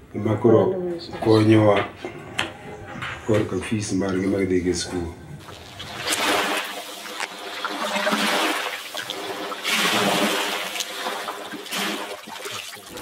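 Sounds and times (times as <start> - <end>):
waves splashing against canoe: 5.4 - 13.0.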